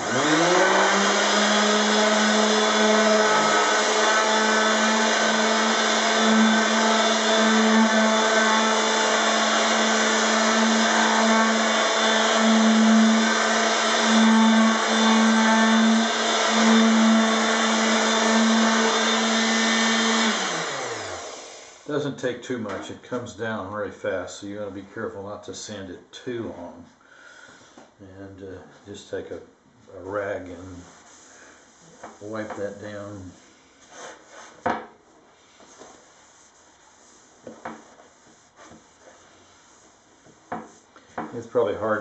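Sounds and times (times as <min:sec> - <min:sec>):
electric palm sander running: 0:00.0 - 0:21.9.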